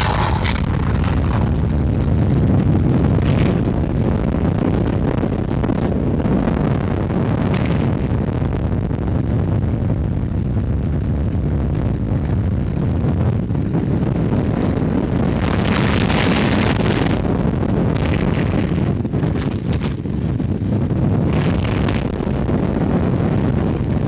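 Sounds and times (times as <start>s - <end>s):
roller coaster wheels rumbling: 0.0s - 4.6s
wind rushing over microphone: 0.0s - 24.0s.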